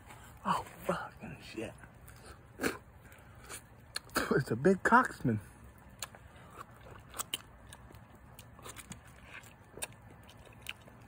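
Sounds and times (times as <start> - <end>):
wet mouth sounds: 2.0 - 4.3, 5.9 - 11.0.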